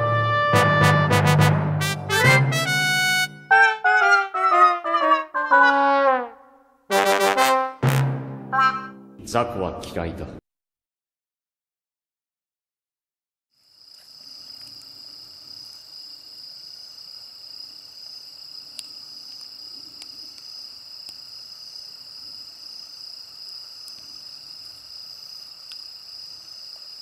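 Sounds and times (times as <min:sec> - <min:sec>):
crickets chirping: 0:13.6 - 0:27.0.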